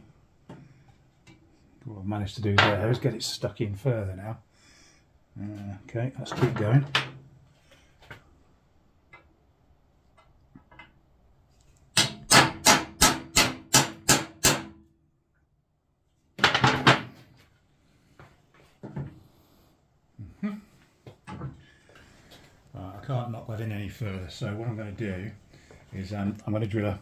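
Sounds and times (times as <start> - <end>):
hammer striking steel punch: 12.0 - 14.8.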